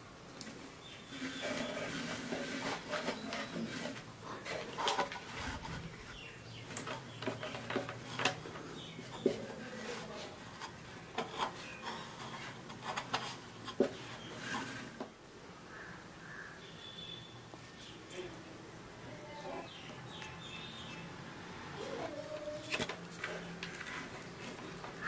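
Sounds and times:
soft rustling of wadding: 0:00.3 - 0:16.4.

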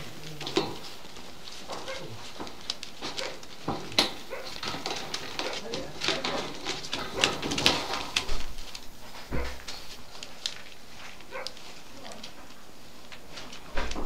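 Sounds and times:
faint puppy whines: 0:00.0 - 0:02.4
puppy whimpering: 0:00.0 - 0:02.6
puppies scuffling on bedding: 0:00.0 - 0:14.0.

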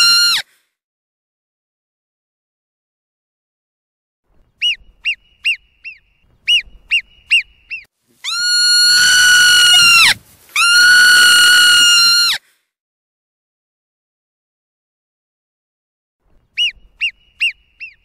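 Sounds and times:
marmot chirps: 0:04.6 - 0:11.1, 0:16.5 - 0:18.0
marmot high whistles: 0:04.6 - 0:12.4, 0:16.6 - 0:18.0.

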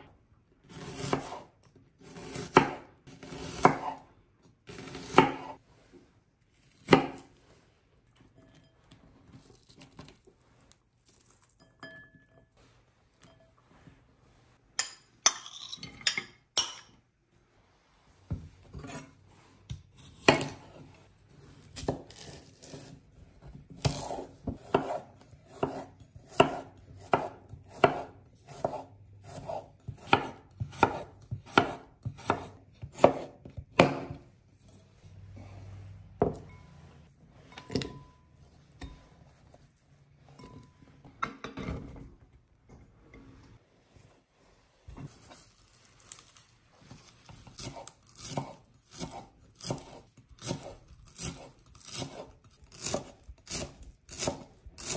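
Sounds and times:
knife chopping cucumber: 0:00.6 - 0:05.6, 0:06.7 - 0:07.3, 0:19.7 - 0:20.8, 0:21.4 - 0:34.2, 0:46.9 - 0:54.9.

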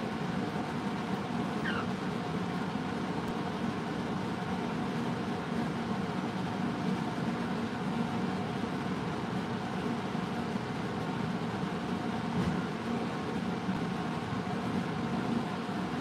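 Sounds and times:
appliance machine hum: 0:00.0 - 0:16.0
faint bird chirp: 0:01.6 - 0:01.9.

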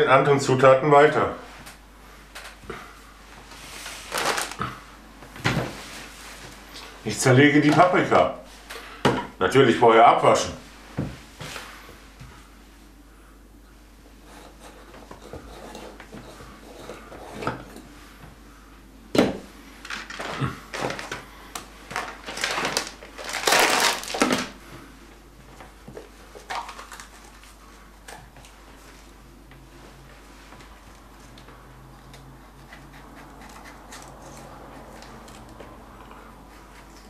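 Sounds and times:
plastic tub rustling and crinkling: 0:03.5 - 0:04.8, 0:19.8 - 0:24.6, 0:25.6 - 0:27.6.

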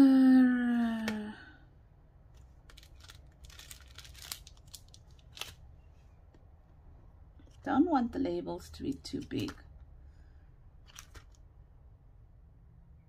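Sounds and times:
woman humming: 0:00.0 - 0:01.6
plastic bag and paper rustling: 0:02.6 - 0:05.6, 0:10.8 - 0:11.4.

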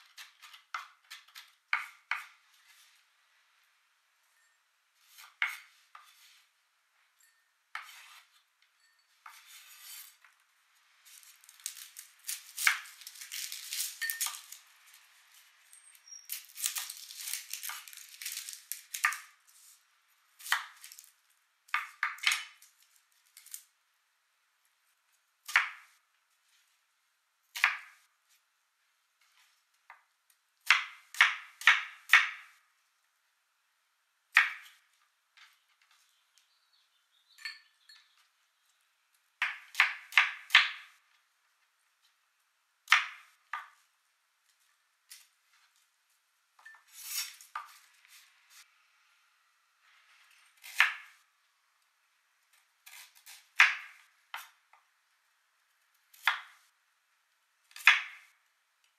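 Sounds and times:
rustling and scraping on board: 0:00.1 - 0:03.1, 0:05.0 - 0:06.6, 0:07.7 - 0:08.5, 0:09.2 - 0:10.4
knife cutting on wooden board: 0:05.0 - 0:06.5, 0:07.7 - 0:08.4, 0:09.2 - 0:10.2, 0:46.9 - 0:47.8.

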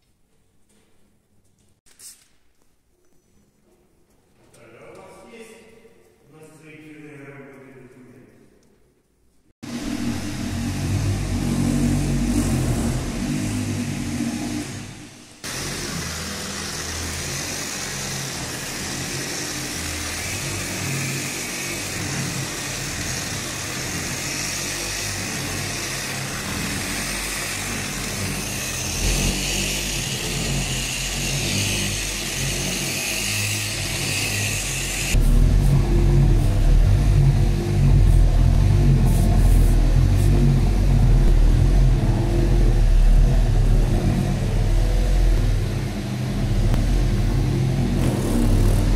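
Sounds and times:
rotary polisher motor whine: 0:09.7 - 0:35.2.

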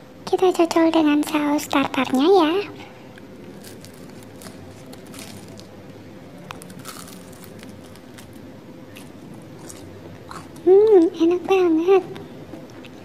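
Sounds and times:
chewing crispy fried food: 0:03.1 - 0:05.8, 0:06.4 - 0:11.2.

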